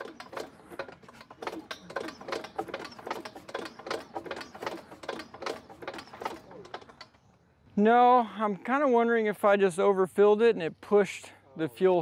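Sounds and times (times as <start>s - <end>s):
engine turned over clicking: 0.0s - 7.4s.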